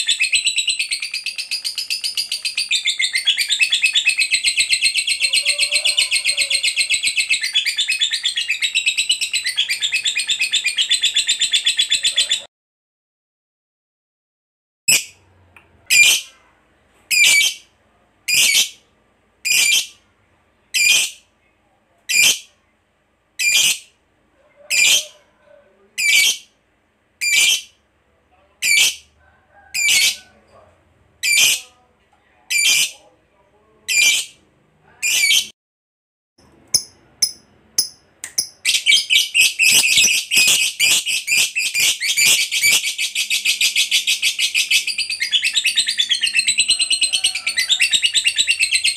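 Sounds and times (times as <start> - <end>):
bird chirping: 0.0 - 12.5, 36.4 - 48.9.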